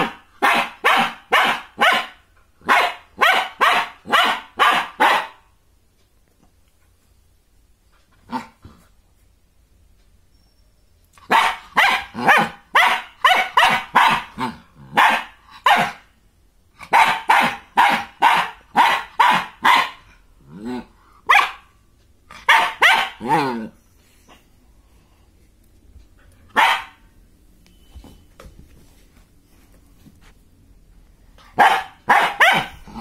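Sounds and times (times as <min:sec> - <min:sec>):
puppy barking: 0:00.0 - 0:05.5, 0:11.2 - 0:16.1, 0:16.8 - 0:20.1, 0:21.2 - 0:21.7, 0:22.3 - 0:23.7, 0:26.5 - 0:27.0, 0:31.5 - 0:33.0.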